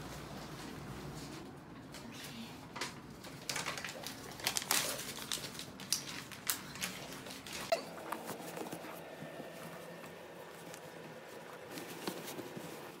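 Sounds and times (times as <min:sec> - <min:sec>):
bed sheet rustling: 0:07.1 - 0:13.0.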